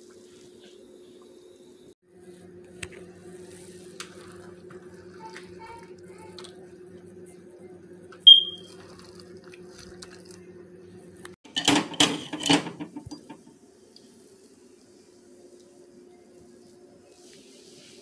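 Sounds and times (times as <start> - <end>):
high-pitched beep: 8.3 - 8.7.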